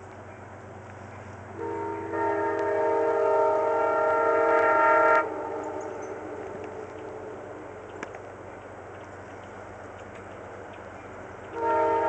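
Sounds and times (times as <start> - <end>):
train rumble: 0.0 - 12.0
train air horn blast: 1.6 - 7.6, 11.6 - 12.0.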